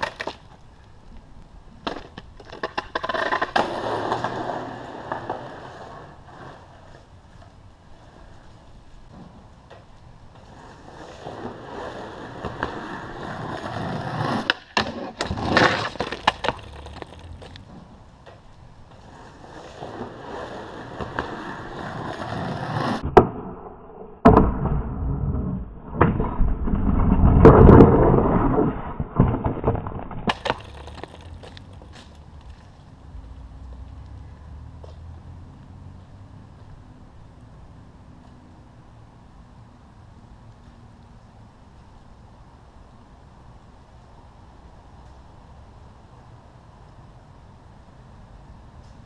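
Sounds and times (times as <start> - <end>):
skateboard clattering on concrete: 0.0 - 0.6, 1.8 - 8.4, 9.1 - 23.3, 26.0 - 32.8
skateboard scraping along wooden box: 0.0 - 0.6, 1.7 - 9.5, 10.3 - 18.0, 18.9 - 23.1, 24.6 - 32.9
skateboard tail clacking: 0.0 - 23.5, 24.2 - 32.8
skateboard wheels rolling on concrete: 0.0 - 49.0.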